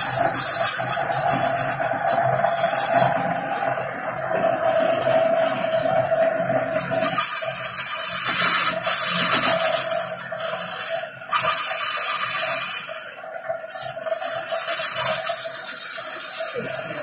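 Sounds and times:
lathe motor hum: 0.0s - 17.0s
chisel cutting wood hiss: 6.8s - 13.1s.

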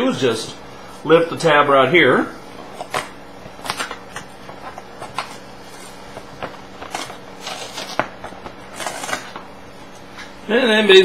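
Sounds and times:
packaging crinkling: 2.7s - 10.1s.

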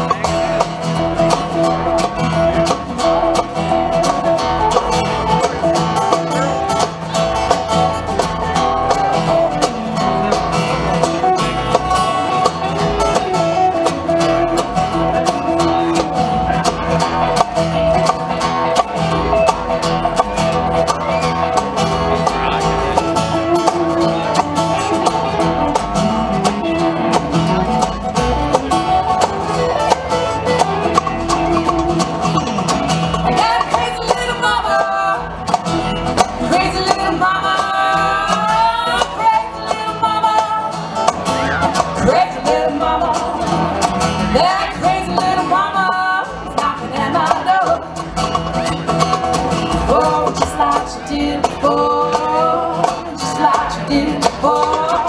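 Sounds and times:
bluegrass band playing: 0.0s - 55.0s
person singing: 33.2s - 35.6s, 36.4s - 41.0s, 41.6s - 48.0s, 49.7s - 55.0s.

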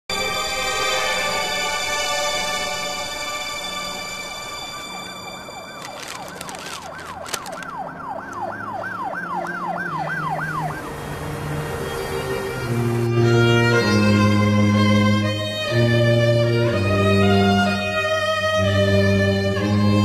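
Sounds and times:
emergency siren yelping: 4.2s - 11.7s
paper crinkling: 5.6s - 8.5s
low soundtrack drone: 7.8s - 20.0s.

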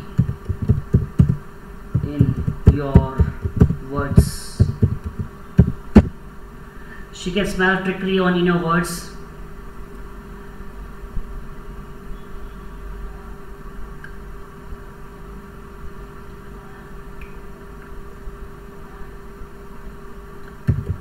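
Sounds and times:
constant tone: 0.0s - 6.1s
low background hum: 0.0s - 21.0s.

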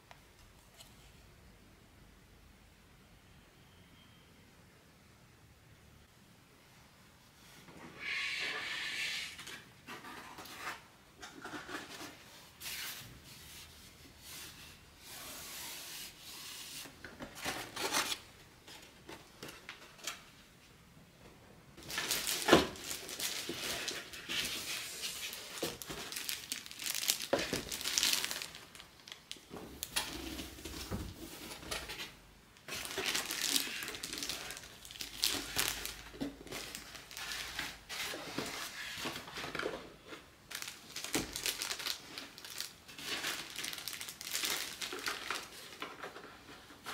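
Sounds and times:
plastic bag crinkling: 21.8s - 30.6s, 32.6s - 38.6s, 40.5s - 46.0s.

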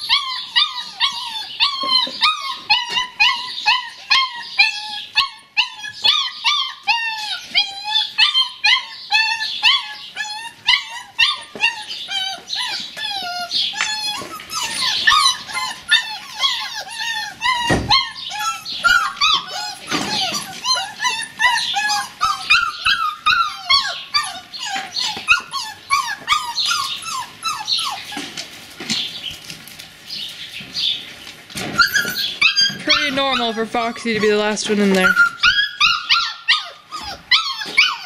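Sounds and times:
puppies whining and yipping: 0.0s - 38.0s
thud: 17.7s - 18.0s.

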